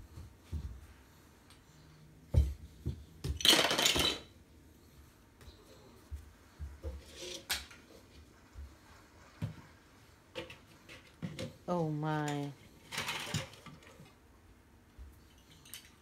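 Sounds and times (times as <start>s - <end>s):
plastic toys knocking together: 3.3s - 4.2s.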